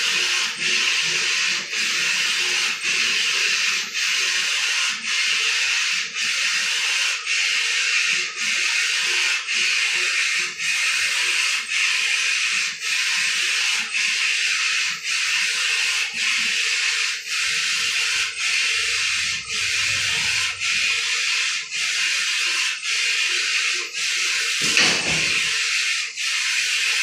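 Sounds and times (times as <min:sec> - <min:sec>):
rolling machine hissing: 0:16.8 - 0:23.6, 0:24.3 - 0:27.0.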